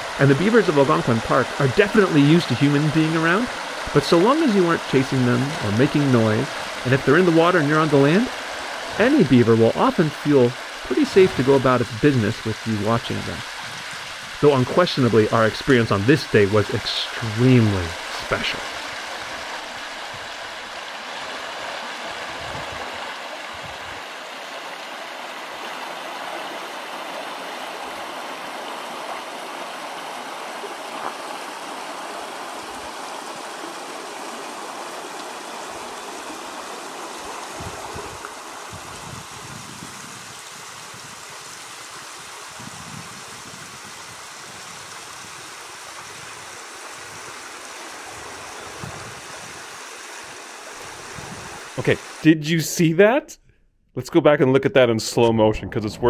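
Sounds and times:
flowing water: 0.0 - 52.4.

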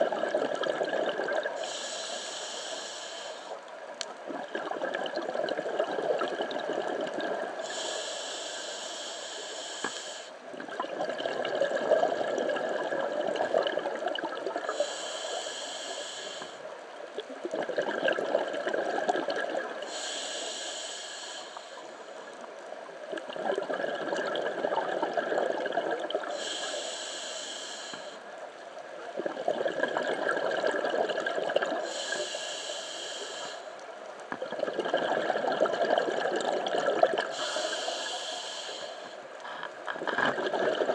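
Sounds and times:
exhaled bubbles underwater: 0.0 - 2.0, 4.2 - 7.9, 10.5 - 15.0, 17.1 - 20.2, 23.0 - 26.6, 29.0 - 32.1, 34.3 - 38.7, 39.8 - 40.9
regulator hiss on inhalation: 1.5 - 3.6, 7.6 - 10.4, 14.7 - 16.7, 19.8 - 22.3, 26.3 - 28.3, 31.8 - 33.8, 37.2 - 39.7.

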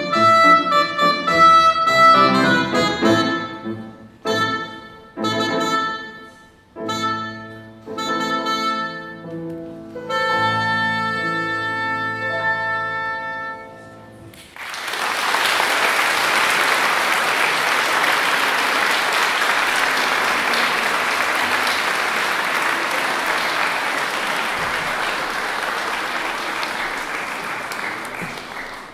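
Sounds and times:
oboe and piano note: 0.0 - 14.2
audience applause: 14.4 - 28.9.

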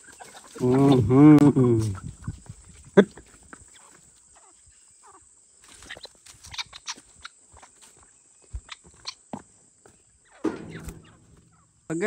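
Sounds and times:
footsteps on dry dirt: 5.6 - 12.0
low thump: 10.4 - 11.9.

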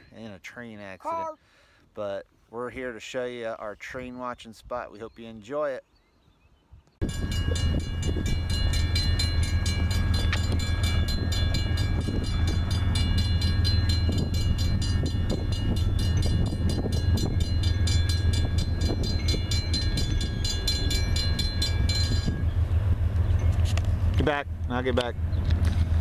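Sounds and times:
railroad crossing bell ringing: 7.0 - 23.6.

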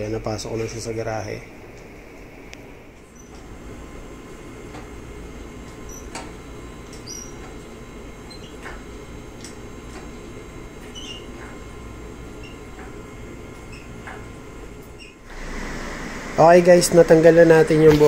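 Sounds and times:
steady low hum: 0.0 - 18.0
hydraulic hoist squeaks and clicks: 3.1 - 3.4, 5.8 - 6.3, 6.9 - 7.6, 8.2 - 8.8, 10.8 - 11.6, 12.4 - 12.9, 13.6 - 14.2, 14.9 - 15.2.

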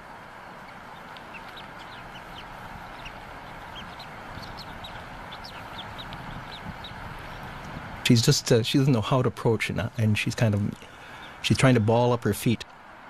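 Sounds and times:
eagles peeping: 0.0 - 7.8, 10.8 - 11.4
steady hiss: 0.0 - 9.2.

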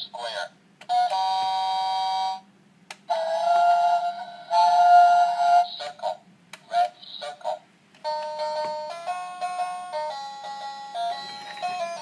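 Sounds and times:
electronic toy tune: 8.1 - 12.0.

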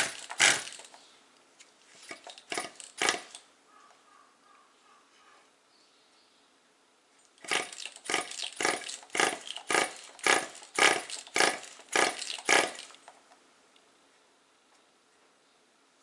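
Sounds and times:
model engine cranking without firing: 0.0 - 1.0, 2.0 - 3.4, 7.4 - 13.2.

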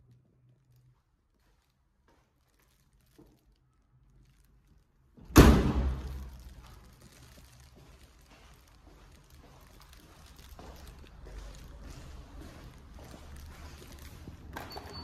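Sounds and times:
door banging shut: 5.3 - 6.2.

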